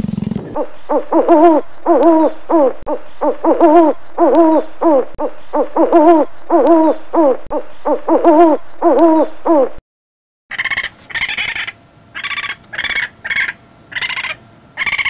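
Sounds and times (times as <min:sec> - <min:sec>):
animal calls rising and falling: 0:10.5 - 0:15.0
high harsh animal sound: 0:10.5 - 0:15.0.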